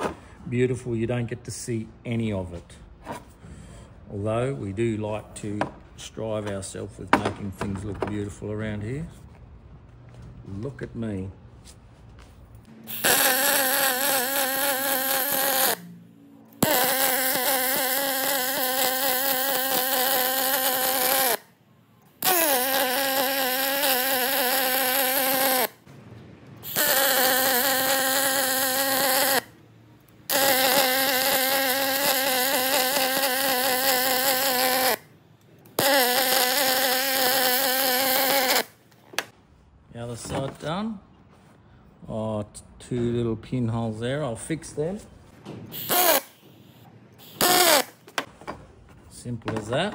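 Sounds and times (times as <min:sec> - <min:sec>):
welder arc buzzing: 0:12.8 - 0:15.9, 0:16.5 - 0:21.5, 0:22.2 - 0:25.9, 0:26.6 - 0:29.6, 0:30.3 - 0:35.1, 0:35.8 - 0:38.8, 0:45.8 - 0:48.1.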